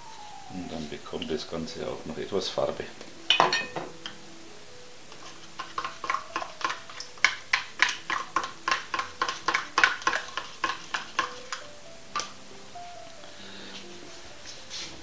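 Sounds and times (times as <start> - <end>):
spoon clicking against plastic cup: 5.6 - 11.6.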